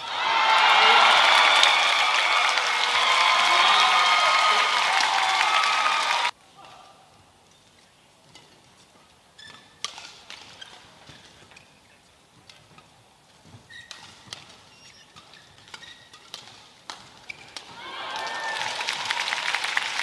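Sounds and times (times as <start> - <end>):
court shoes squeaking: 7.5 - 17.8.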